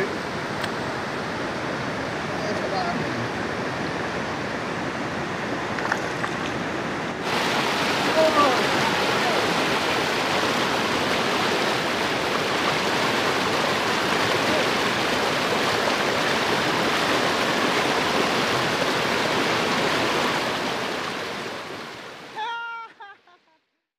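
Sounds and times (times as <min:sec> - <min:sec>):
river rushing over rocks: 0:00.0 - 0:22.6.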